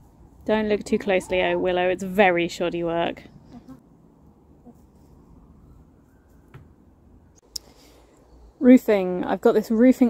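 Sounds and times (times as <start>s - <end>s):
hen clucking: 3.4s - 3.9s.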